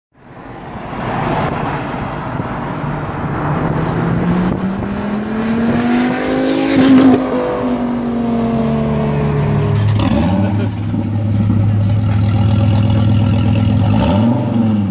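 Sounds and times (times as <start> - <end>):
car engine accelerating: 2.6 - 14.9.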